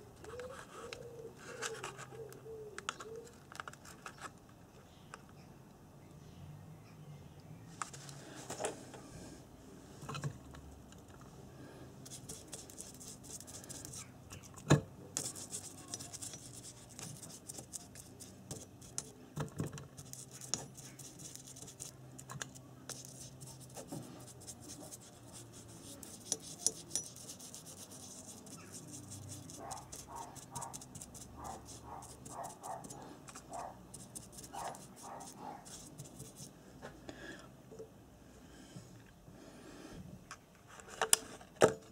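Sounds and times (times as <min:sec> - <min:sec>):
scratching and rustling on bench: 0:15.2 - 0:36.5.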